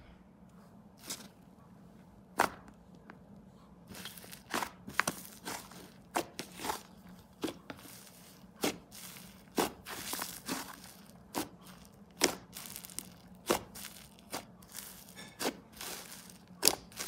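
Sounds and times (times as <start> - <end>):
slime squished with sticky pops: 3.9 - 17.0.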